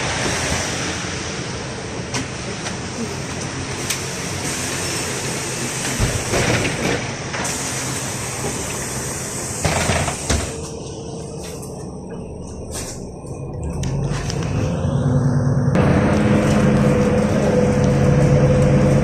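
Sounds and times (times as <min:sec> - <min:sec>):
bus engine rumble: 0:00.0 - 0:19.0
street noise: 0:00.0 - 0:19.0
bus doors closing thumps: 0:05.8 - 0:08.9, 0:09.6 - 0:10.8
air hissing: 0:07.4 - 0:10.8.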